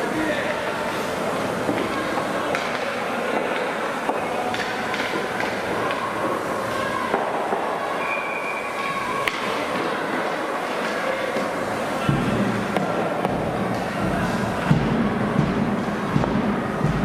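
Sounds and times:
hockey sticks clacking: 0.0s - 8.1s, 8.8s - 17.0s
brief squeals: 8.0s - 9.1s.

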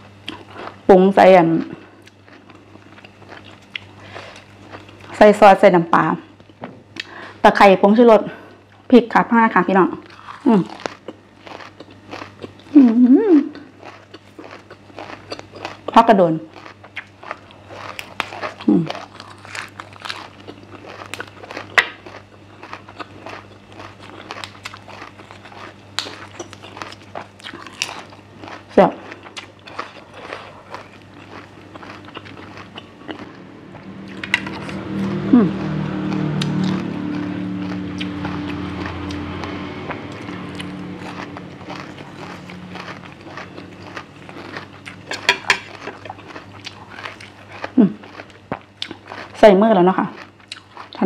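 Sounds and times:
chewing and crunching: 0.0s - 7.3s, 8.0s - 51.0s
low engine-like hum: 30.9s - 47.1s.

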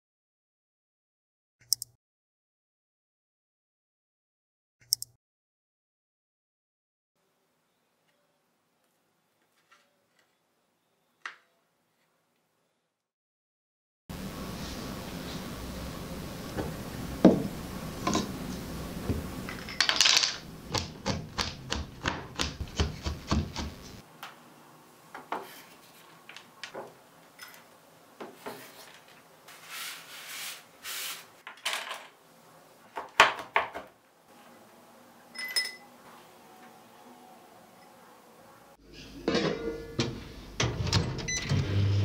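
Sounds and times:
knife chopping on wooden board: 20.7s - 23.8s
clink on glass bowl: 35.4s - 35.8s.

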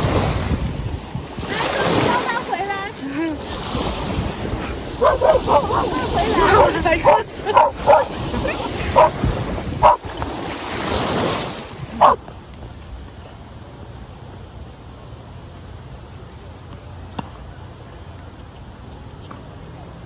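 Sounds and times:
lake waves washing: 0.0s - 13.0s
wind: 0.0s - 20.0s
dog barking: 5.0s - 9.2s, 9.8s - 10.1s, 12.0s - 12.2s.

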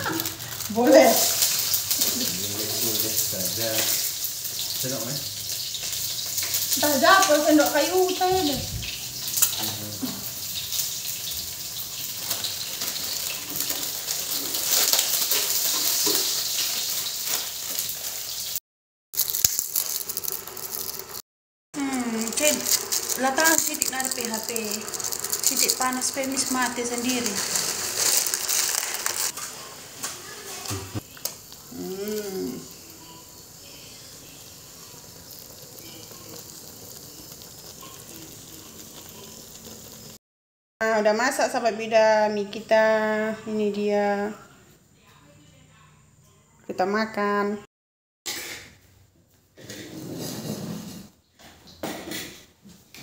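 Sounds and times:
hot oil sizzling in wok: 0.0s - 18.6s, 19.2s - 40.2s.

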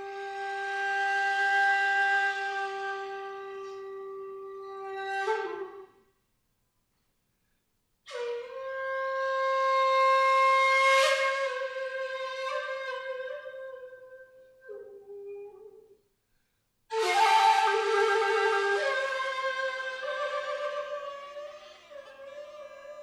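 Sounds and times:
breathy bamboo flute notes: 16.9s - 23.0s.

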